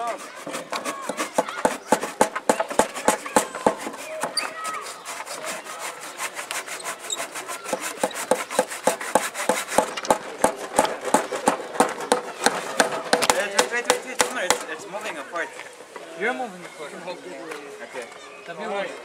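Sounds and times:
rubbing on wood: 0.0 - 14.7
sharp knocks on wood: 0.5 - 4.4, 7.7 - 14.7.

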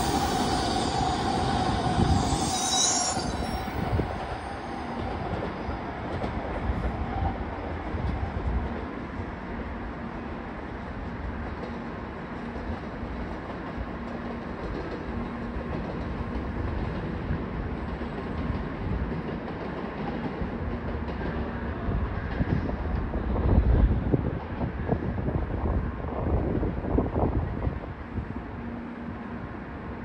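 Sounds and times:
train rumbling on track: 0.0 - 30.0
wind buffeting microphone: 3.1 - 9.2, 20.3 - 28.6.

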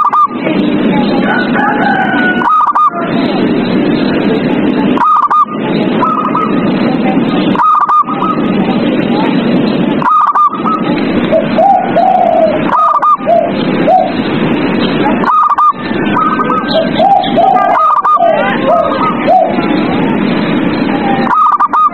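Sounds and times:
lower dove coos: 0.0 - 0.4, 1.2 - 3.4, 4.9 - 6.8, 7.5 - 8.6, 10.0 - 14.2, 15.2 - 19.8, 21.2 - 21.9
dense steady background noise: 0.0 - 21.9
doves cooing stuttering notes: 0.0 - 21.9.

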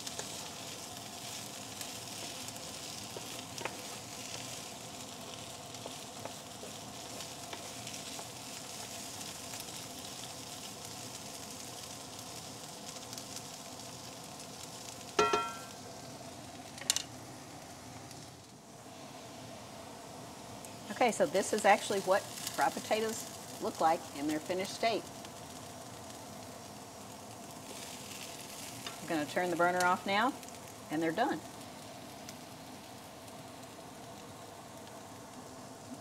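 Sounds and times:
potatoes sizzling in a skillet: 0.0 - 36.0
loud ringing knock: 15.2 - 15.6.

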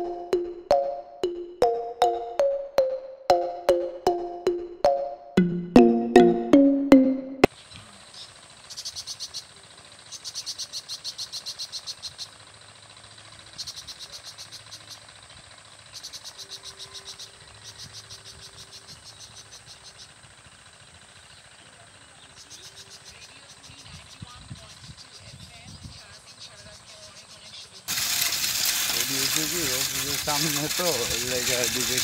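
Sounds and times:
music jingle: 0.0 - 7.5
insects calling: 7.5 - 32.0
rapid pulsed insect chirping: 8.0 - 32.0.

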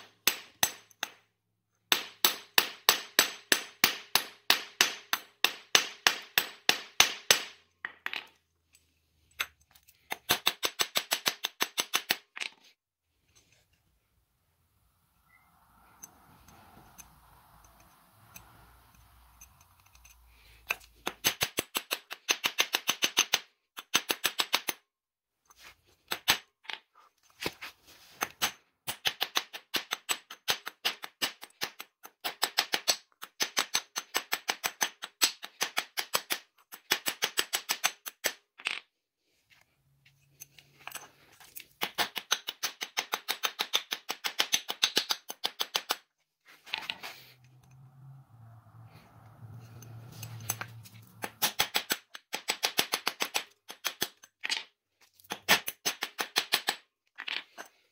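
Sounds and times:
hammer tapping rivets: 0.0 - 8.4, 9.3 - 12.6, 16.9 - 24.8, 28.2 - 38.8, 40.8 - 46.1, 50.2 - 57.8.

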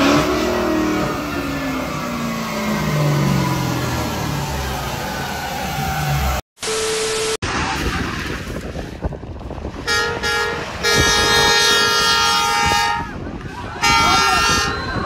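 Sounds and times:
outdoor vehicle noise: 0.0 - 15.0
truck horn blast: 9.8 - 13.2, 13.8 - 15.0.

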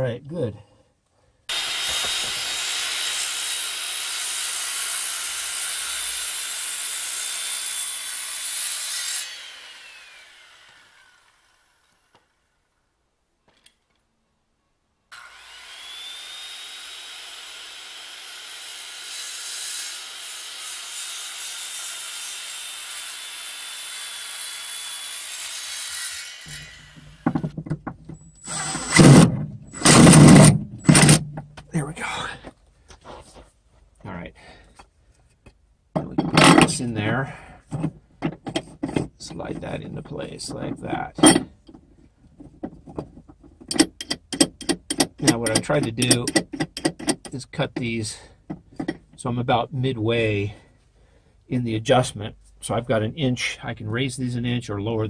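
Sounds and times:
circular saw cutting wood: 1.5 - 12.4, 15.1 - 27.6, 28.4 - 31.3, 43.7 - 49.3.

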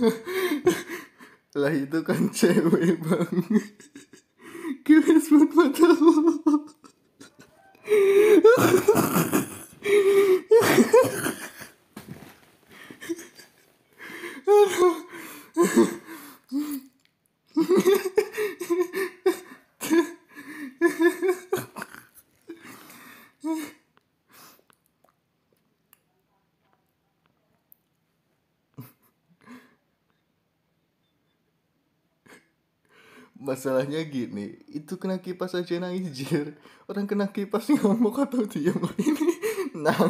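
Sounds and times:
person laughing and wheezing: 0.0 - 1.4, 2.4 - 16.9, 17.5 - 24.6, 38.6 - 40.0.

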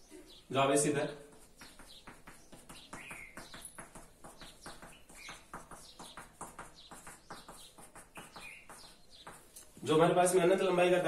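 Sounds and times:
chalk scratching on blackboard: 1.3 - 9.8
chalk tapping on blackboard: 1.3 - 9.8.

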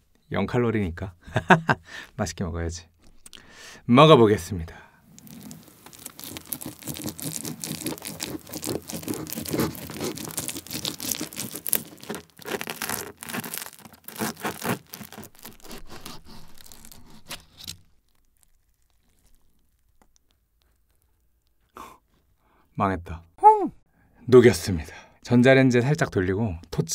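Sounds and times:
knife sawing through pizza: 6.3 - 17.6.

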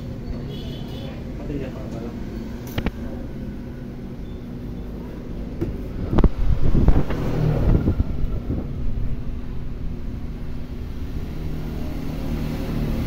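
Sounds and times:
low rumbling and knocking: 5.5 - 11.5.

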